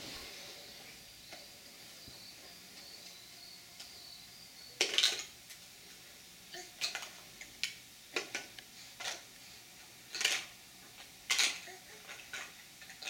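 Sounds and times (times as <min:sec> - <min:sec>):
plastic toy blocks clattering: 0:04.8 - 0:05.3, 0:06.8 - 0:07.2, 0:10.1 - 0:10.5, 0:11.3 - 0:13.0.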